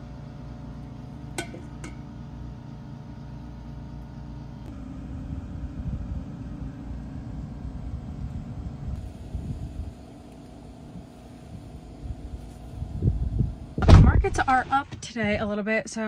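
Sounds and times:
low mechanical hum: 0.0s - 16.0s
metal pail clinking: 1.4s - 2.0s.

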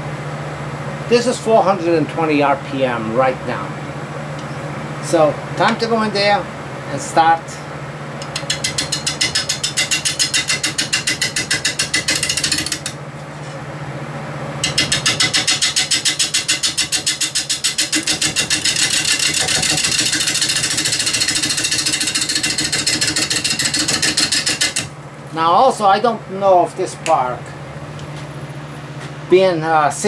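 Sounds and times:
gouge cutting wood on lathe: 14.6s - 24.9s
lathe humming: 14.6s - 24.9s.

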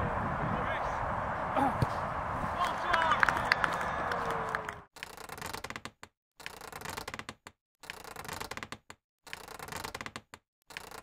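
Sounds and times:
mechanical clicking and rattling: 5.0s - 11.0s.

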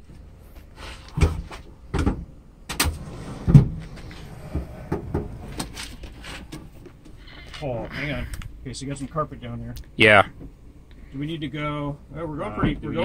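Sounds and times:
scraping over wood: 3.0s - 7.7s
heavy object clunking on wood: 3.3s - 6.8s.

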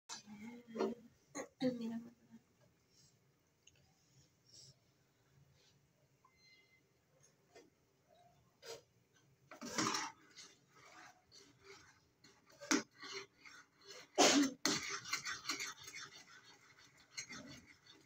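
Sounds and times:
person coughing: 14.2s - 14.7s.

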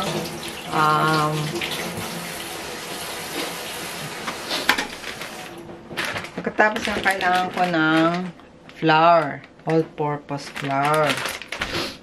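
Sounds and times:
water running: 0.0s - 6.0s.

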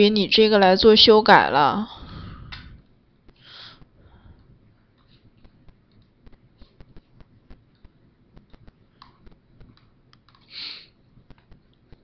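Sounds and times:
short breathy hiss: 10.5s - 10.9s.

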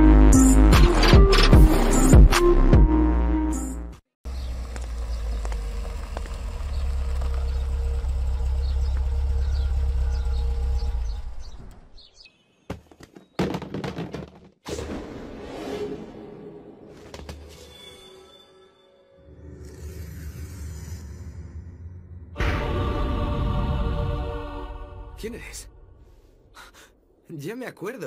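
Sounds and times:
large vehicle rumbling past: 4.3s - 12.0s
faint bird chirps: 6.7s - 12.7s
sharp knocks and thumps: 12.7s - 14.6s.

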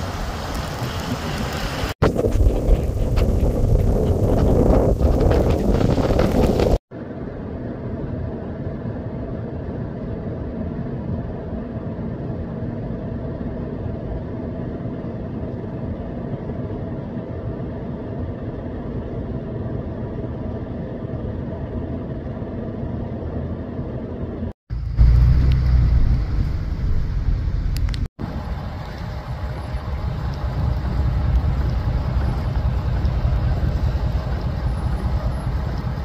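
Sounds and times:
wind and road noise: 0.0s - 36.0s
snowblower engine droning: 24.7s - 36.0s.

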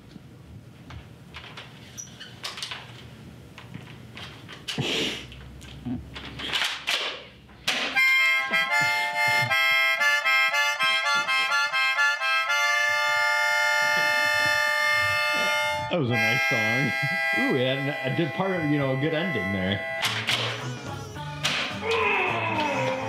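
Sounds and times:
harmonica chords: 7.9s - 23.0s.

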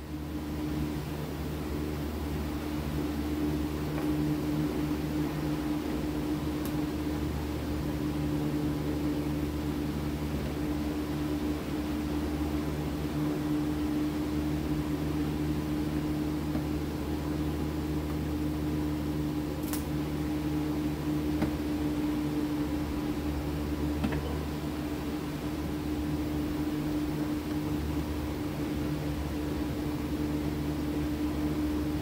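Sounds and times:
steady mechanical hum: 0.0s - 32.0s.

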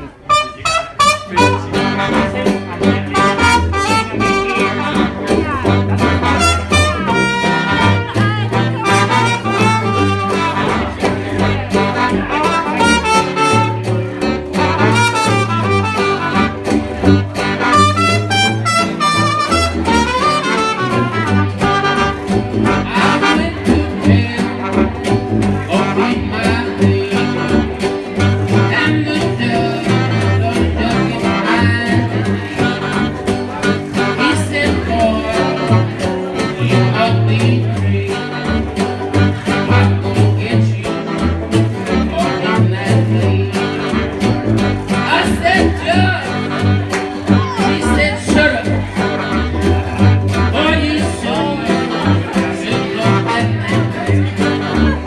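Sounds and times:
clarinet and horns: 0.0s - 29.0s, 29.7s - 37.2s, 38.2s - 40.2s, 40.8s - 55.0s
guitar strumming a beat: 0.0s - 55.0s
tuba bass line: 0.0s - 55.0s
washboard beat: 0.3s - 55.0s.

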